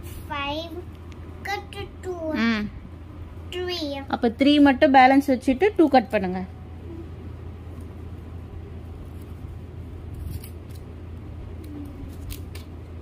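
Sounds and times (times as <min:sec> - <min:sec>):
steady low hum: 0:00.0 - 0:13.0
scissors snipping paper: 0:10.1 - 0:10.9, 0:11.6 - 0:12.8.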